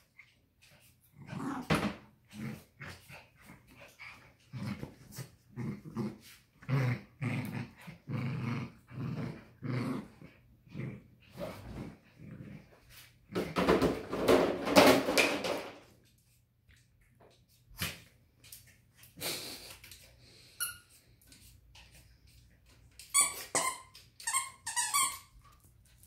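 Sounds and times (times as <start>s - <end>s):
dogs growling and scuffling: 0.0s - 15.8s.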